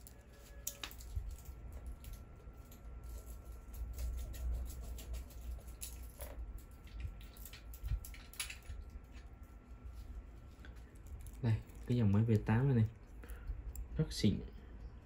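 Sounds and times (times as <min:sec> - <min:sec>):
wristwatch clicks and scrapes: 0:00.3 - 0:09.3.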